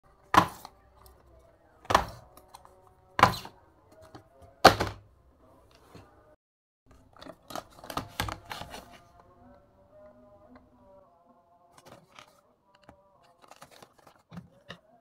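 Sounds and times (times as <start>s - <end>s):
cardboard boxes dropped on table: 0.3s - 0.7s, 1.9s - 2.2s, 3.2s - 3.5s, 4.6s - 5.0s
plastic blister packs clicking: 6.9s - 9.0s, 11.8s - 14.8s.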